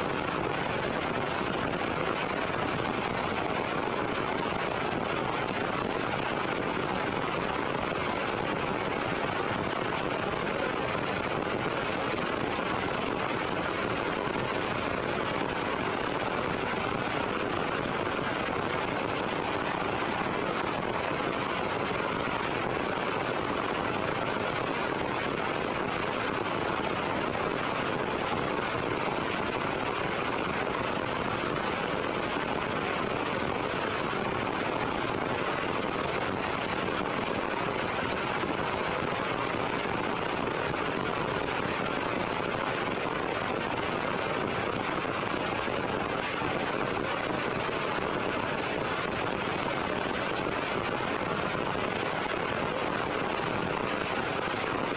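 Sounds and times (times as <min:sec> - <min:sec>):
heavy rain on foliage: 0:00.0 - 0:54.9.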